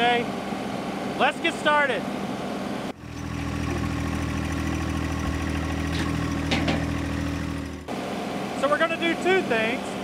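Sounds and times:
tractor with rotary mower running: 0:02.9 - 0:09.7
tractor engine idling: 0:03.0 - 0:08.0.

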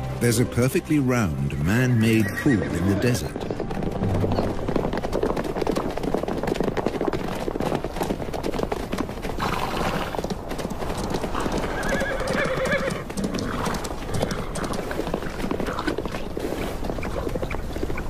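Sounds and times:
hoofbeats clattering: 0:00.0 - 0:18.0
horse whinnies: 0:02.0 - 0:03.4, 0:09.4 - 0:10.2, 0:11.4 - 0:14.8.

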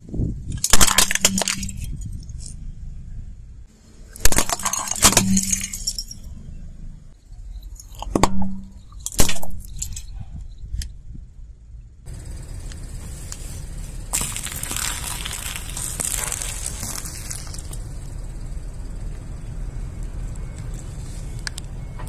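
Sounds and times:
plastic toys cracking under tyre: 0:00.5 - 0:01.9, 0:14.1 - 0:17.8.

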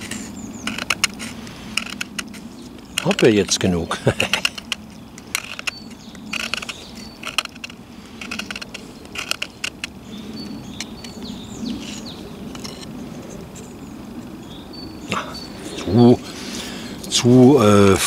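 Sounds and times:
knife scraping wood: 0:00.0 - 0:13.7.

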